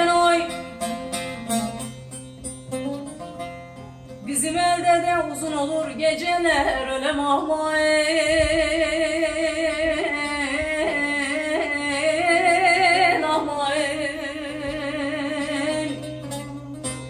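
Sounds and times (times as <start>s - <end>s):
woman singing with vibrato: 0.0s - 0.8s, 4.2s - 16.3s
long-necked lute playing: 0.0s - 17.0s.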